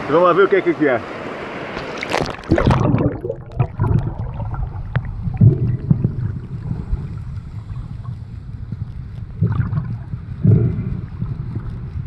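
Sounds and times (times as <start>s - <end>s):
water splashing: 1.6s - 11.2s
small clicks and knocks underwater: 1.8s - 12.0s
muffled underwater rumble: 2.4s - 12.0s.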